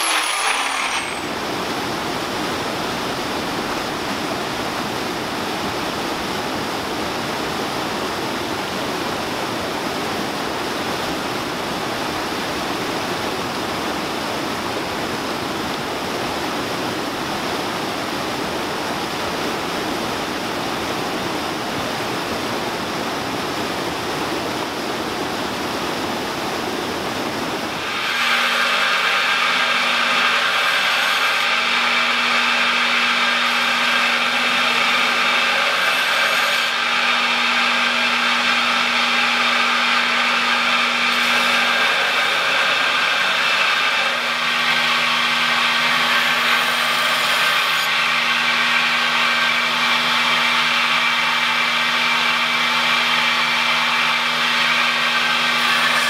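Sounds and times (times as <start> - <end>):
belt grinder running: 0.0 - 1.8, 27.8 - 56.0.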